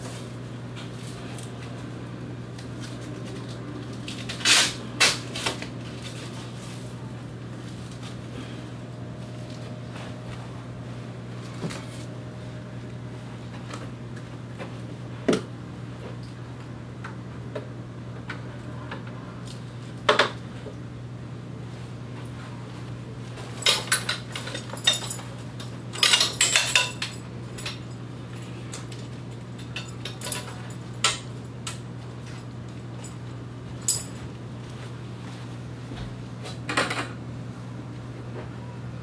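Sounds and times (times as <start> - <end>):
steady low hum: 0.0 - 39.0
metal frame parts knocking and clinking: 26.0 - 27.8.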